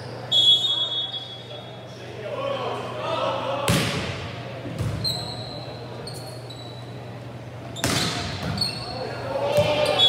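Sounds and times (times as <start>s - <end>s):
volleyball being struck hard: 3.7s - 4.2s
sneakers squeaking on court: 4.8s - 7.0s, 7.7s - 10.0s.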